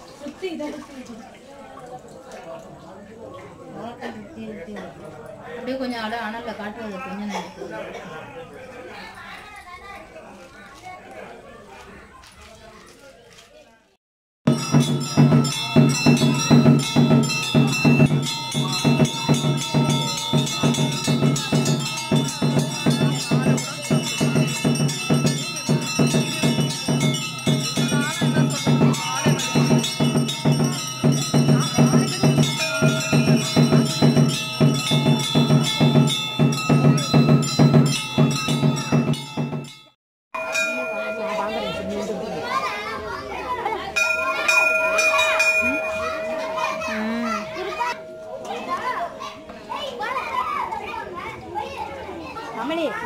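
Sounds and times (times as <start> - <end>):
temple bells ringing rapidly: 14.5 - 51.0.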